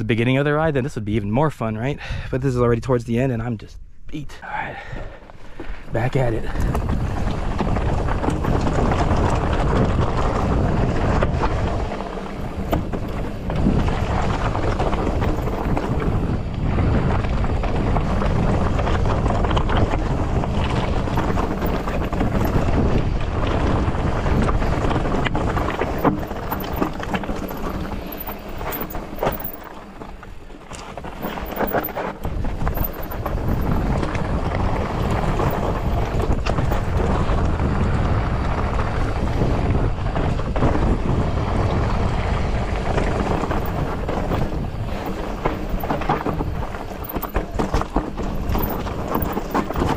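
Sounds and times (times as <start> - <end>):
wind rushing over microphone: 3.8 - 49.9
tyres rolling over loose rock: 6.1 - 49.9
bike clattering over bumps: 6.5 - 49.9.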